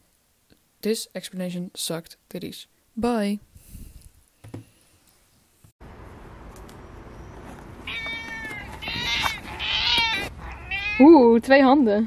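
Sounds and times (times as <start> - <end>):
low background hiss: 0.0 - 5.6
cat meowing: 7.8 - 11.2.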